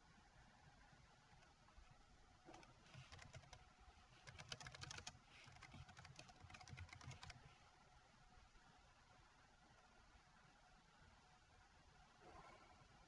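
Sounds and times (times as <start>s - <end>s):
faint typing on keyboard: 2.4s - 7.6s.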